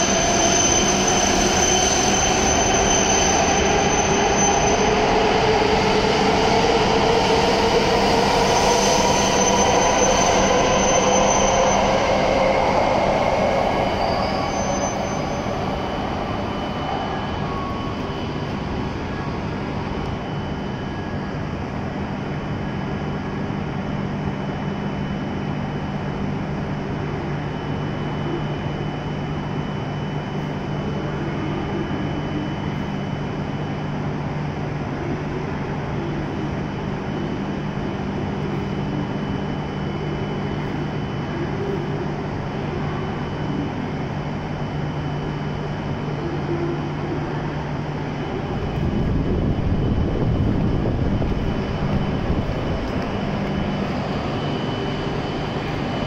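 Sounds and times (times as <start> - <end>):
steady low train hum: 0.0 - 56.0
faint high steady tone: 7.8 - 22.0, 27.0 - 56.0
train traction motors whining: 35.1 - 56.0.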